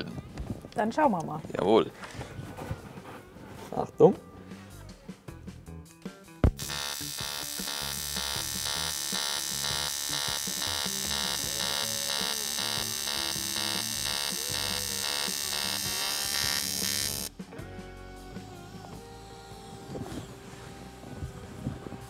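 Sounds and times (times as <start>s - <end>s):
welding arc buzzing: 6.4s - 17.3s
welding arc striking crack: 6.4s - 17.3s.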